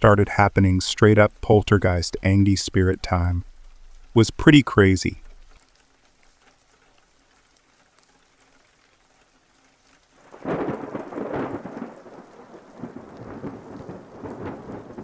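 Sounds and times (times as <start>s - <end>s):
steady rain: 0.0s - 15.0s
thunderclap rumbling: 10.2s - 15.0s.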